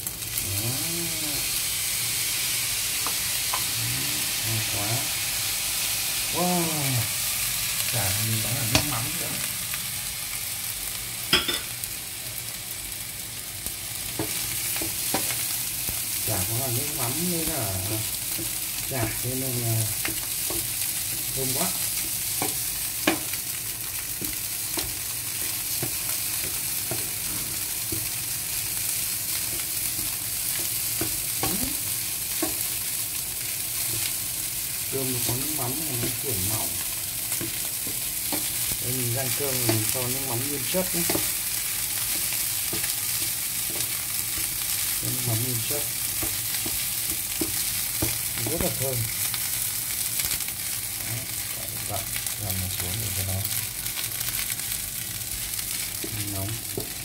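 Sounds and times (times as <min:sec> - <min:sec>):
rice sizzling in a pan: 0:00.0 - 0:57.0
spatula scraping and knocking pan: 0:22.0 - 0:28.2, 0:40.8 - 0:44.7.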